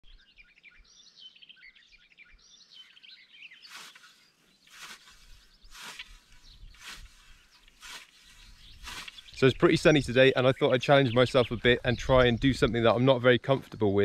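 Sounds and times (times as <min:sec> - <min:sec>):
birds twittering: 0:00.0 - 0:14.0
scythe swishing through grass: 0:03.6 - 0:09.4.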